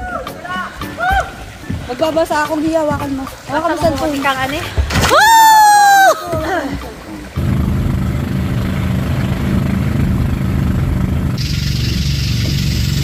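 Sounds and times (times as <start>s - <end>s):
boat engine drone: 7.3s - 13.0s
hiss: 11.4s - 13.0s.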